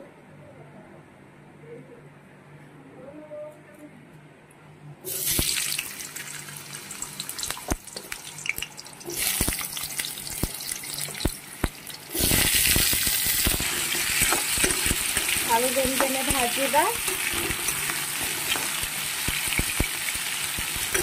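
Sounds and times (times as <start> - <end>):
oil sizzling with pops: 5.1 - 21.0.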